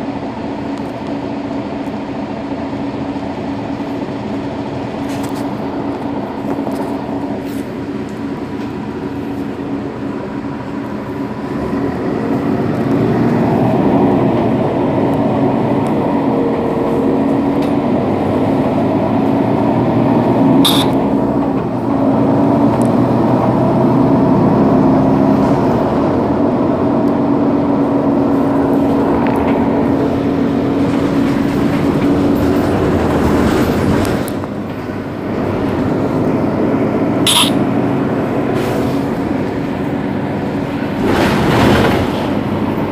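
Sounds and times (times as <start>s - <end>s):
diesel bus engine idling: 0.0s - 41.2s
short sharp click: 37.3s - 37.6s.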